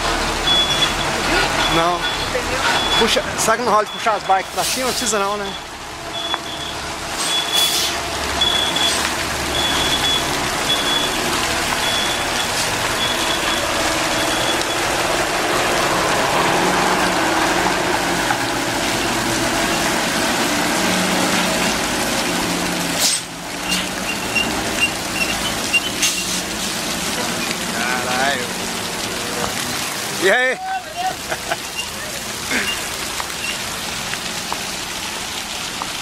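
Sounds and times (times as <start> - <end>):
diesel trucks running: 0.0 - 36.0
truck warning alarm beeping: 0.3 - 7.8, 8.4 - 15.3, 23.6 - 26.3
air brake hiss: 7.2 - 8.0, 23.0 - 23.9.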